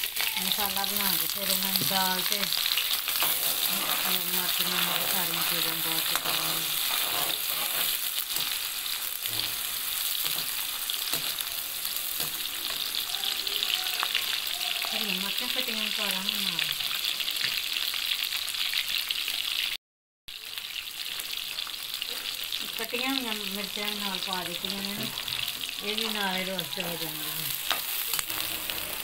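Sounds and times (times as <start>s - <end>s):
onions sizzling in oil: 0.0s - 29.0s
metal spoon scraping wok: 0.4s - 13.1s, 24.1s - 29.0s.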